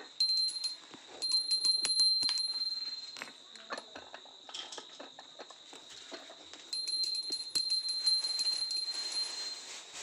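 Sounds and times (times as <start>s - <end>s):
small bell rung rapidly: 0.0s - 3.4s, 6.7s - 9.8s.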